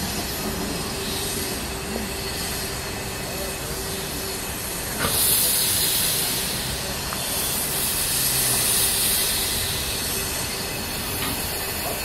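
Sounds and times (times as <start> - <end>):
steam locomotive venting steam: 0.0 - 12.0.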